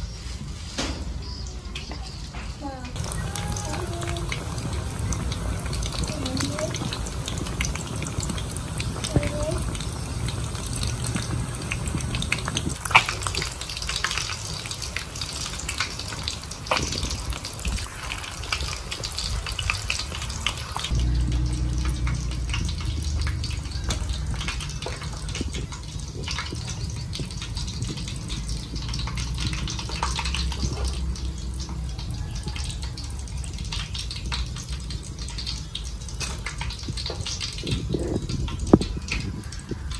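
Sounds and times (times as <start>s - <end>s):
food deep-frying in oil: 1.2s - 39.9s
low steady rumble: 3.0s - 12.8s, 20.8s - 32.0s.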